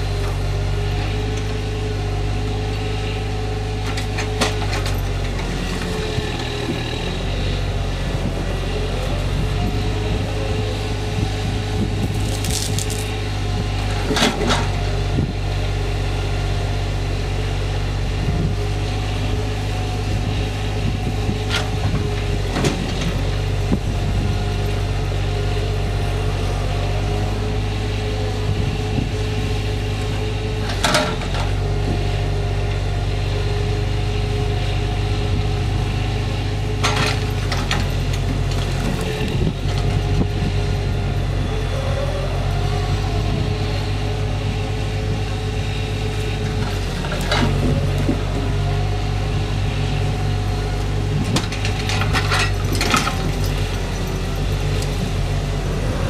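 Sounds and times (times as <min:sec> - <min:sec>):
engine running steadily: 0:00.0 - 0:56.0
logs knocking together: 0:12.2 - 0:13.1
wavering hydraulic whine: 0:39.1 - 0:56.0.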